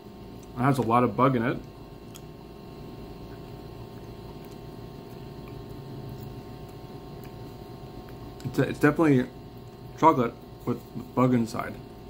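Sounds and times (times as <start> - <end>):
electrical hum: 0.0 - 12.0
mouth chewing clicks: 1.6 - 2.4, 3.3 - 7.4.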